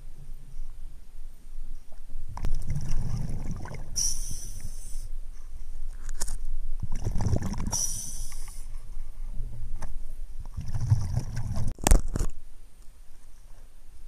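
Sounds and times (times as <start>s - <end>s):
muffled underwater rumbling and bumping: 1.7s - 4.0s, 5.8s - 7.8s, 8.4s - 12.4s
short hiss: 4.0s - 5.1s, 7.7s - 8.7s.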